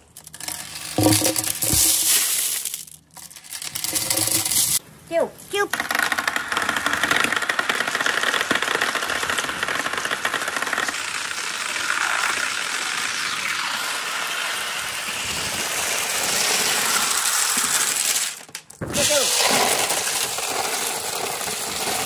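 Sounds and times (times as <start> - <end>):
glass marbles clattering down chutes: 0.0 - 4.8.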